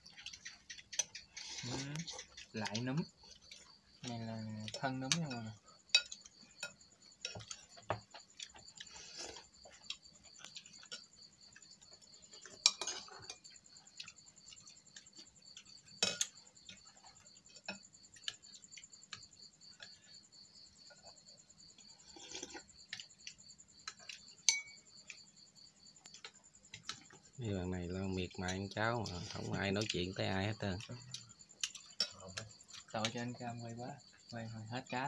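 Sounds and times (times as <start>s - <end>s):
spoons clinking on ceramic bowls: 12.6s - 13.4s, 24.4s - 24.8s.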